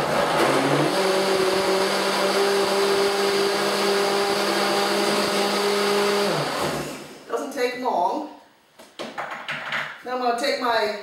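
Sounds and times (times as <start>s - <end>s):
blender running: 0.0s - 7.3s.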